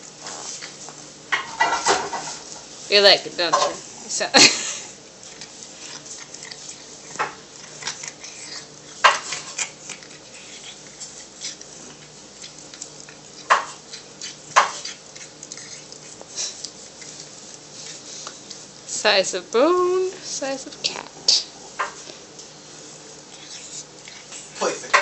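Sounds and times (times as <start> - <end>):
cat chewing on bone: 4.9 - 18.9, 20.8 - 25.0.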